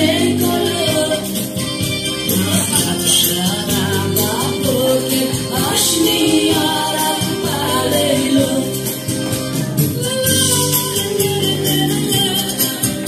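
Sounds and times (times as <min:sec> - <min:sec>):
dance music: 0:00.0 - 0:13.0
person singing: 0:00.0 - 0:13.0.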